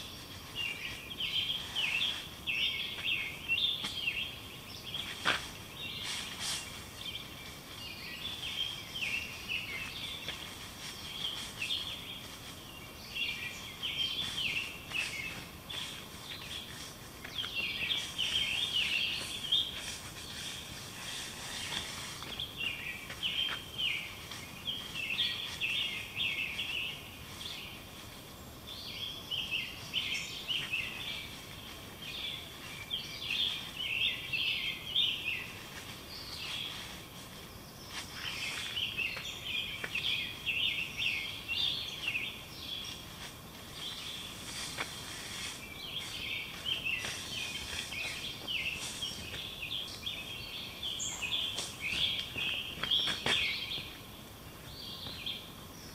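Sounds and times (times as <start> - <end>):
low outdoor hiss: 0.0 - 55.9
songbirds chirping: 0.0 - 55.9.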